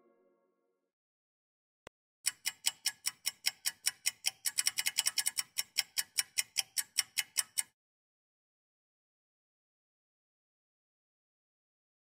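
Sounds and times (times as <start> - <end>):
clock-like ticking: 2.2 - 7.8.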